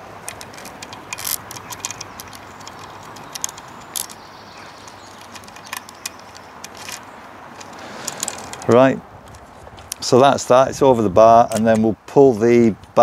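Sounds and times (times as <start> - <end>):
saw chain links clicking: 0.2 - 9.4.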